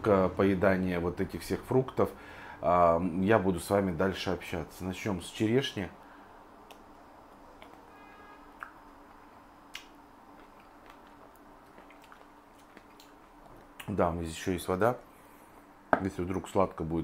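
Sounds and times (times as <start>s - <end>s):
soft mouth clicks: 6.6s - 6.9s, 7.6s - 7.8s, 8.6s - 8.8s, 9.7s - 13.9s
faint chewing: 9.7s - 13.9s.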